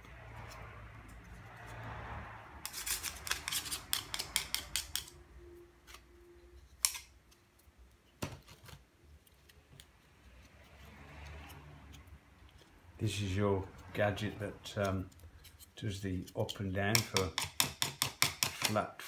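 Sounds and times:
hand tool scraping plastic: 2.6s - 5.2s, 14.2s - 19.0s
sharp scraping clicks: 2.6s - 5.2s.

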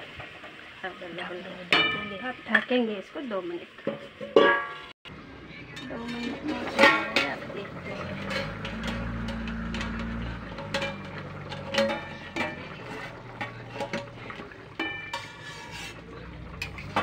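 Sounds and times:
metal knocks and clinks: 5.7s - 14.2s
metal spoon scraping pot: 5.7s - 17.0s.

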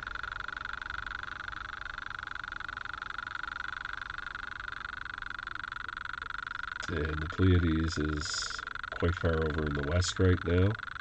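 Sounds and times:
high-pitched pulsing buzz: 0.0s - 11.0s.

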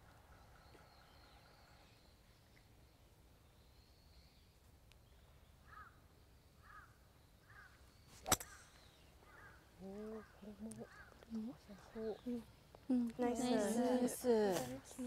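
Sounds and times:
bird calling: 6.6s - 12.5s
golf club striking ball: 8.2s - 8.9s.

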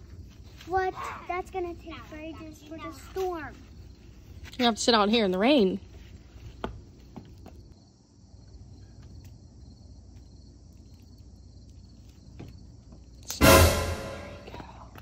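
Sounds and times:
insects chirring: 6.2s - 13.4s.

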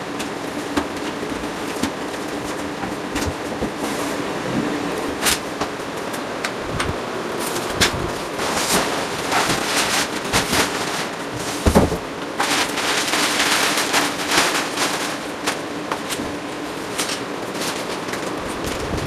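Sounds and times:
plastic cover crackling: 7.6s - 19.0s.

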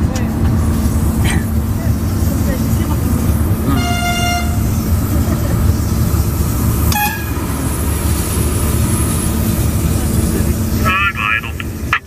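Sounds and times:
diesel locomotive engine running: 0.0s - 12.0s
train horn: 3.7s - 4.9s, 6.9s - 7.6s.

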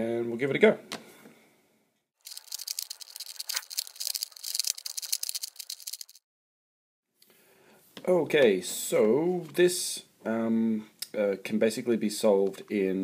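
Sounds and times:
puzzle cube plastic clicks: 2.3s - 6.2s.

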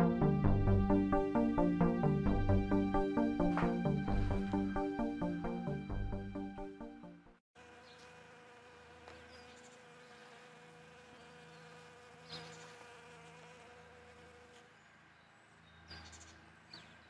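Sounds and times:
bee buzzing: 7.6s - 14.8s.

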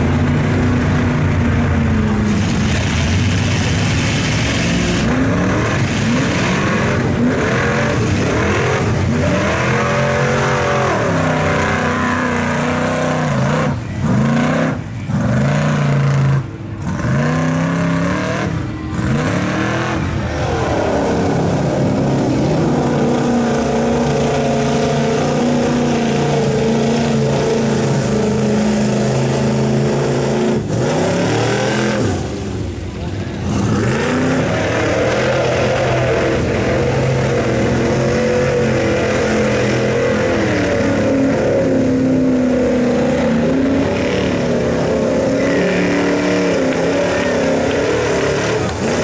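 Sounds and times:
truck engine revving: 0.0s - 49.0s.

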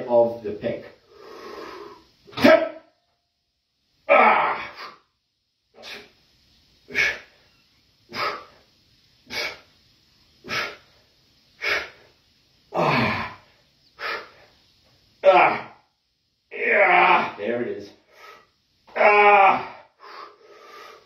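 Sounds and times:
man breathing out forcefully: 1.1s - 2.2s, 6.8s - 7.4s, 8.1s - 9.7s, 10.4s - 14.6s, 19.5s - 21.0s.

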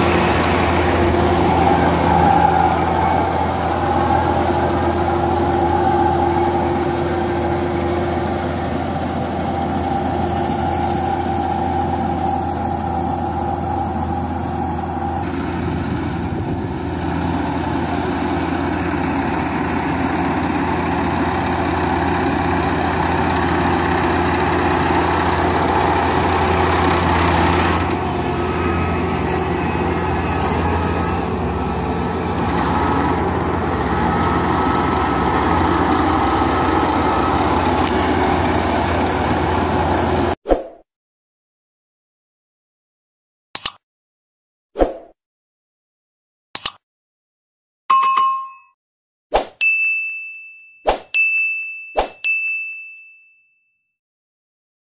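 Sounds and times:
combine harvester running: 0.0s - 40.4s.

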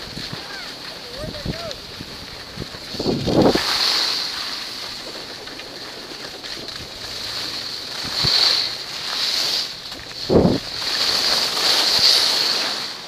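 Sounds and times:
wind on microphone: 0.0s - 8.7s, 9.6s - 11.3s
skis scraping over snow: 0.0s - 13.0s.

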